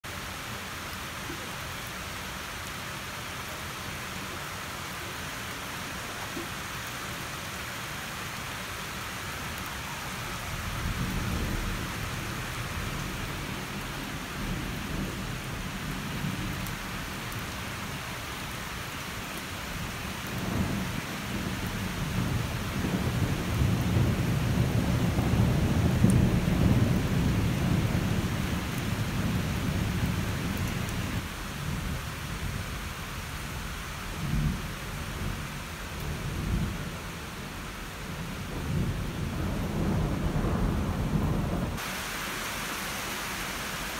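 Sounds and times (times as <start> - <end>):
heavy rain falling: 0.0 - 43.9
thunder rumbling: 10.2 - 17.7, 19.7 - 32.8, 38.0 - 41.8.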